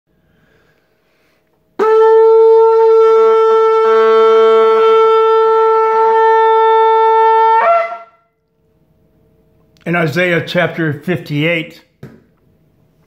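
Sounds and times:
shofar blast: 1.8s - 8.4s.

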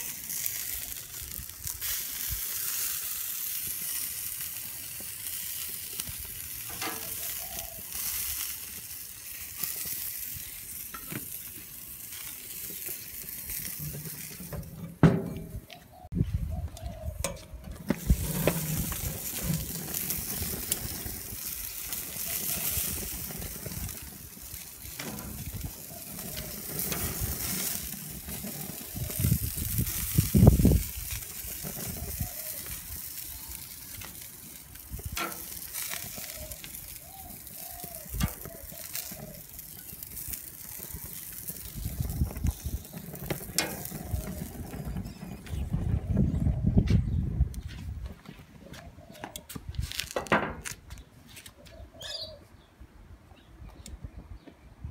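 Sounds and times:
grease sizzling on hotplate: 0.0s - 15.0s, 17.8s - 46.2s.

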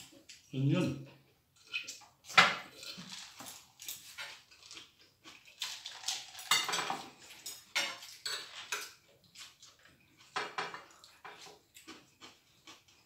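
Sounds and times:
cutlery clinking on plates: 1.6s - 4.7s, 5.6s - 11.6s.

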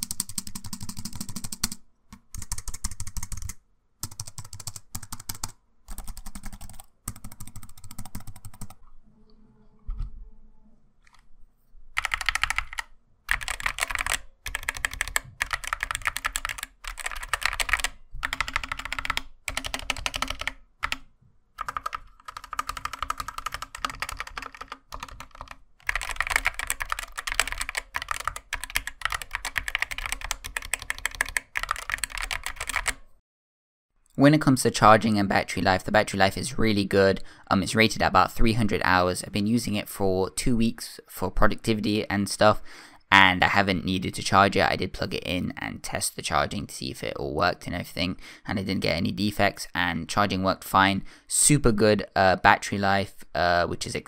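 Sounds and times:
fast mechanical keyboard typing: 0.0s - 8.8s, 12.0s - 21.0s, 21.6s - 33.0s
soft keyboard typing: 0.0s - 8.8s, 12.0s - 33.1s.

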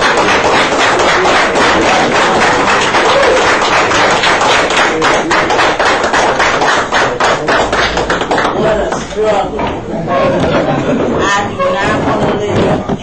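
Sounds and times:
people clapping in rhythm: 0.0s - 9.8s.

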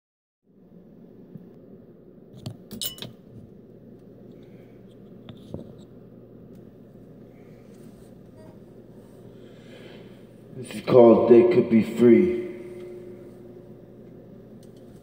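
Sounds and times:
low steady hum: 0.5s - 15.0s
sharp clicks and clinks: 2.7s - 3.2s.

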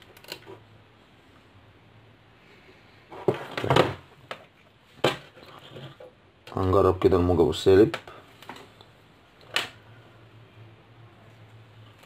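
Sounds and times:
knocks and rustles on a desk: 3.1s - 6.1s.

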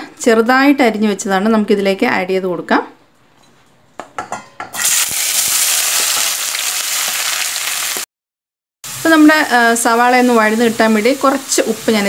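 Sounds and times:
onions sizzling in oil: 4.8s - 8.1s, 8.8s - 12.0s.

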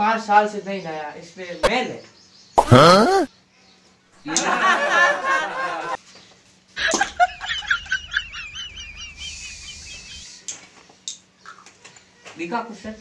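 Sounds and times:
hiss: 9.3s - 10.5s.

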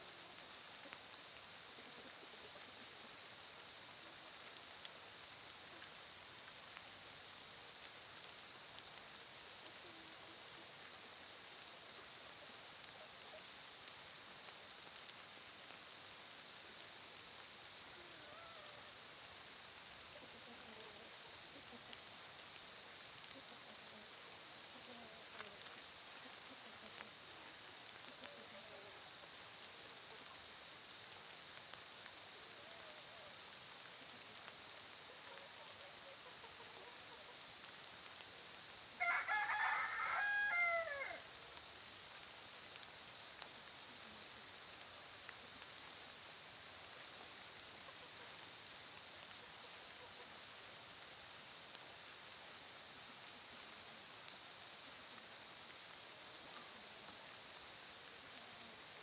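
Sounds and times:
faint steady hiss: 0.0s - 59.0s
rooster crowing: 39.0s - 41.2s.

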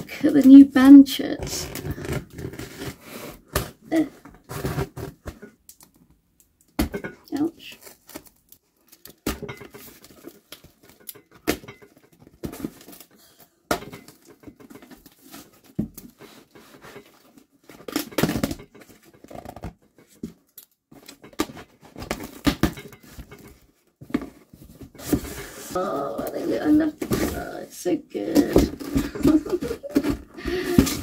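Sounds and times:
packaging rustling and tearing: 1.4s - 3.7s, 7.6s - 9.2s.

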